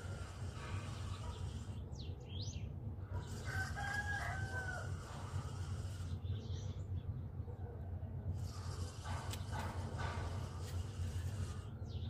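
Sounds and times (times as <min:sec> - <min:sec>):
rooster crowing: 0:03.2 - 0:05.3.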